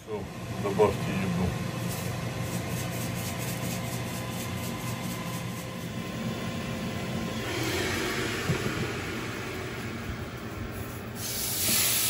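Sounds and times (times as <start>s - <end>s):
grill fan humming: 0.0s - 12.0s
food hissing on grill plate: 10.8s - 12.0s.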